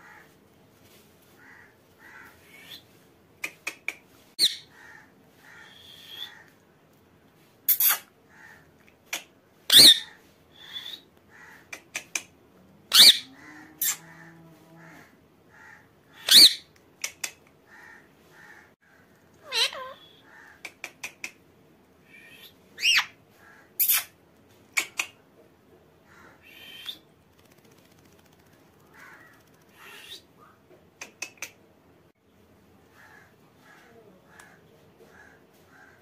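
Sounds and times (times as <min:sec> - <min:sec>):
parakeet screeching calls: 0:09.7 - 0:10.1, 0:12.9 - 0:14.0, 0:16.2 - 0:16.6, 0:19.4 - 0:20.3, 0:22.8 - 0:23.1
parakeet soft chatter: 0:19.4 - 0:21.4.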